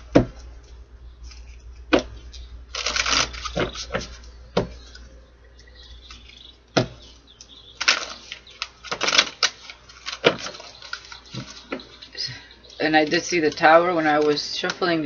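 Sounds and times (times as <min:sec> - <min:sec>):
cards being shuffled: 0:00.4 - 0:04.3, 0:13.0 - 0:14.9.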